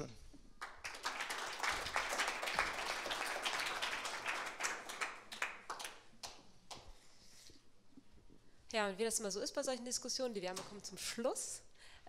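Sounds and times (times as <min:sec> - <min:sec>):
audience applauding: 0:00.6 - 0:06.4.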